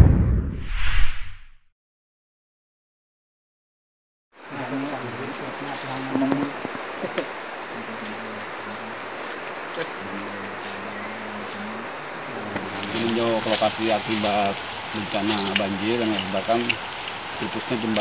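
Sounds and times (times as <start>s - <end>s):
insects calling: 4.4s - 18.0s.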